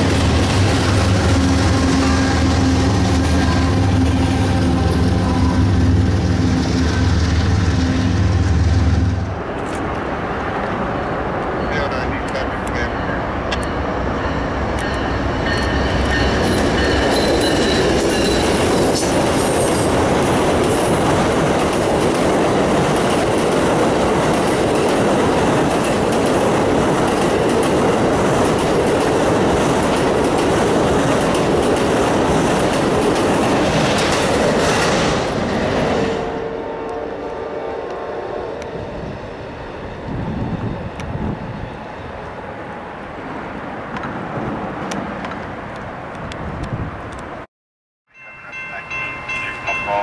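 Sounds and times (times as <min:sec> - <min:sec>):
train wheels rumbling on rails: 0:00.0 - 0:36.3.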